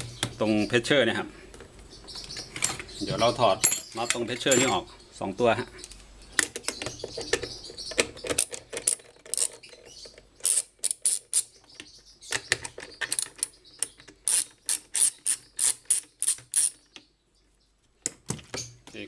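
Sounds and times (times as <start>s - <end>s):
ratchet wrench clicking: 10.4s - 11.5s, 14.3s - 16.8s.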